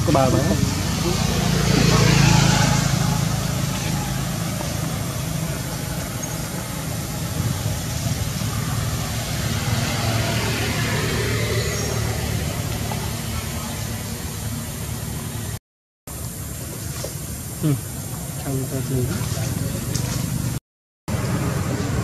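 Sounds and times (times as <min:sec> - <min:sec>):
engine humming: 0:00.0 - 0:22.0
noisy background: 0:00.0 - 0:22.0.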